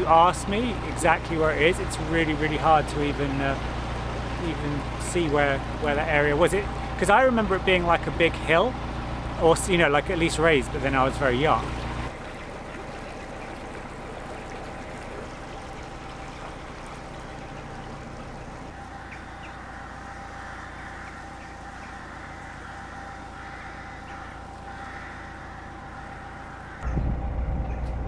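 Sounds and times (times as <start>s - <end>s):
boat engine humming: 0.0s - 28.0s
crows cawing: 18.7s - 26.8s.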